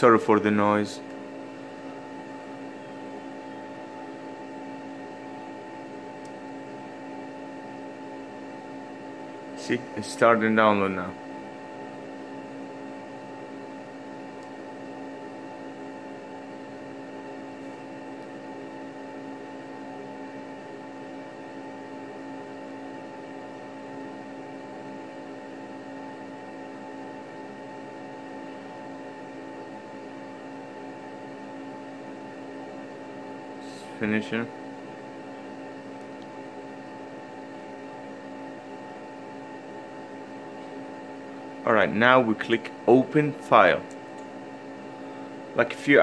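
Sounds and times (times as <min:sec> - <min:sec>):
machine hum with hiss: 0:00.0 - 0:46.0.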